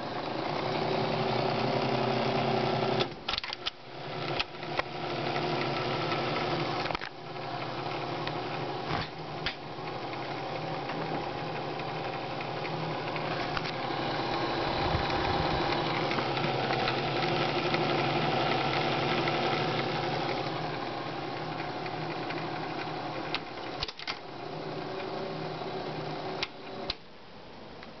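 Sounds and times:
film projector whirring: 0:00.0 - 0:27.1.

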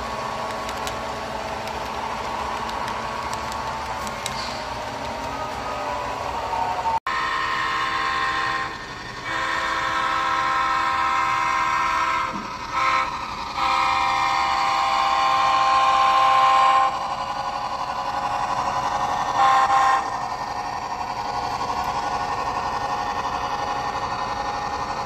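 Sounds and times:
steady running noise: 0:00.0 - 0:06.1
locomotive horn blasts: 0:07.1 - 0:17.1, 0:19.4 - 0:20.1.

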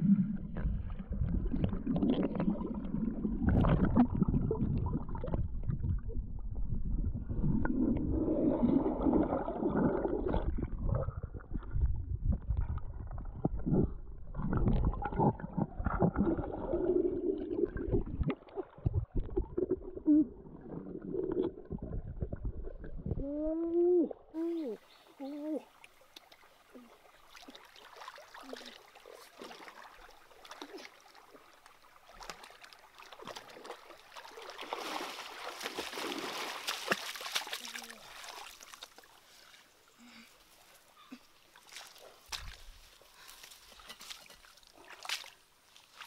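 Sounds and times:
muffled underwater water rumbling: 0:00.0 - 0:24.3.

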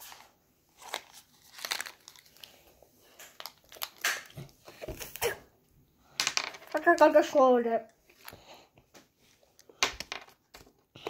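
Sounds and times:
plastic wrapper crinkling: 0:00.0 - 0:05.3.

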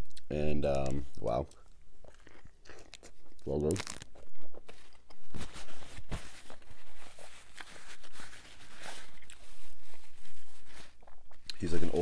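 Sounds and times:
close-up chewing: 0:00.0 - 0:05.4, 0:08.6 - 0:11.6
paper napkin rustling: 0:04.7 - 0:11.0.

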